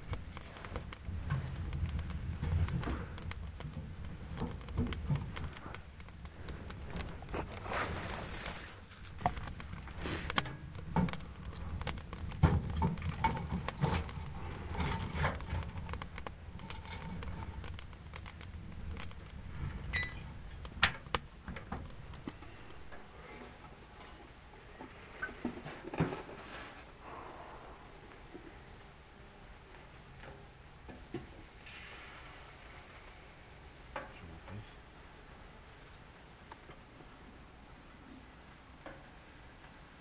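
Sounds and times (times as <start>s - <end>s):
logs knocking and clattering: 0.0s - 23.6s.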